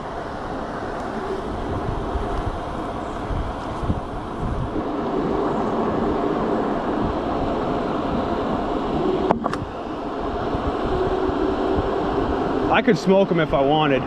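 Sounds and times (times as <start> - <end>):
faint hum: 0.0 - 14.0
wind and road rush: 0.0 - 14.0.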